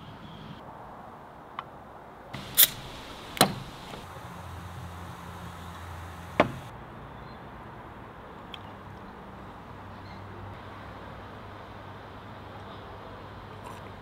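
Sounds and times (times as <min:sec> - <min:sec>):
fizzy drink pouring into glass: 0:02.4 - 0:04.0
sharp clicks: 0:02.4 - 0:04.1.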